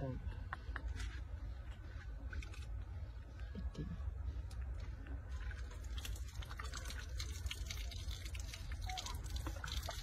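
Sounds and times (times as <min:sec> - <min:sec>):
steady low rumble: 0:00.0 - 0:07.5
water dripping: 0:05.4 - 0:10.0.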